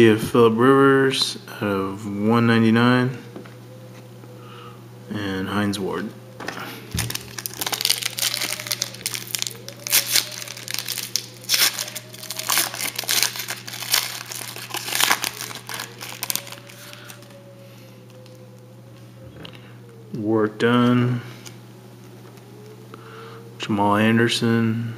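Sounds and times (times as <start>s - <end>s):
foil wrapper crinkling: 6.8s - 18.4s.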